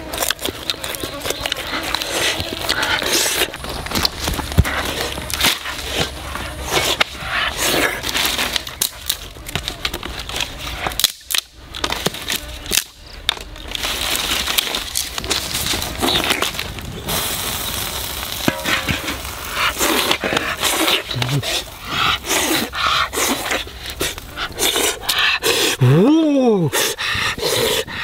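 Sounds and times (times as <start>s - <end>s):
dry sticks crackling and snapping: 0.0s - 25.3s.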